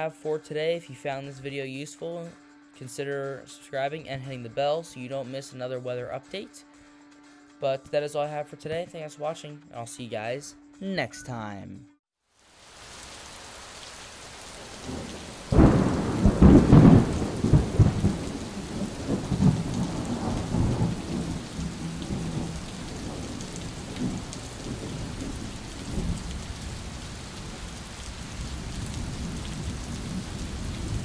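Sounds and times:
steady rain: 12.3s - 31.0s
thunder rumbling: 14.6s - 31.0s.

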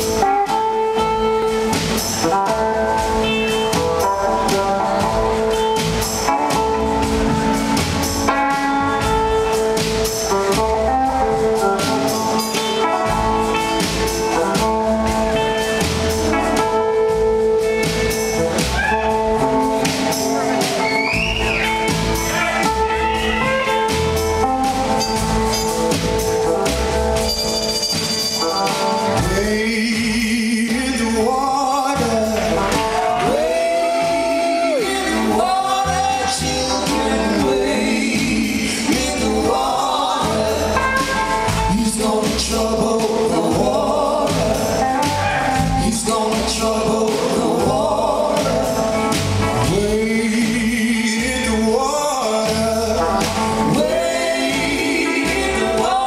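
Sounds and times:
drums: 0.0s - 56.0s
horn section chords: 2.2s - 29.7s, 38.6s - 41.8s
person singing with vibrato: 29.0s - 56.0s.

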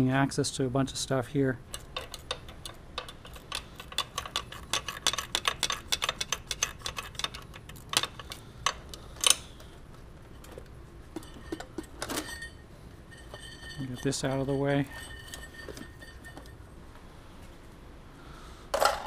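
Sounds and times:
hose clamp clicking and ticking: 1.7s - 9.4s.

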